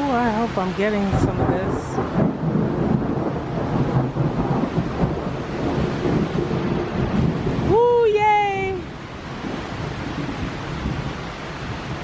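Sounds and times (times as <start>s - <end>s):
person exclaiming: 7.6s - 8.9s.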